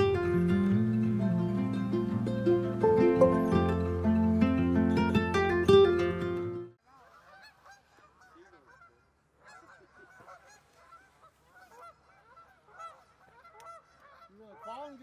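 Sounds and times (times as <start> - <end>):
guitar music: 0.0 - 6.7.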